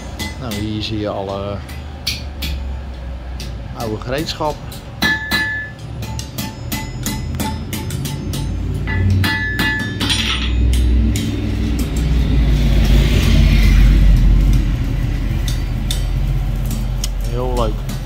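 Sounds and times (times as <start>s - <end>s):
hammer striking metal anvil: 0.0s - 2.7s, 4.6s - 12.1s
low rumble: 10.4s - 17.3s.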